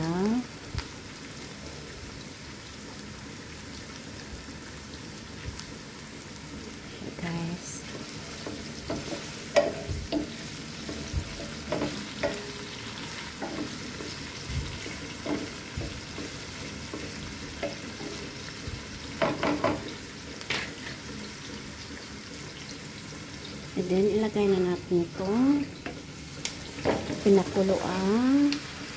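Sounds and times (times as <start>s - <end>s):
food sizzling in oil: 0.0s - 28.9s
spatula scraping and knocking pan: 7.8s - 21.0s, 25.8s - 28.0s.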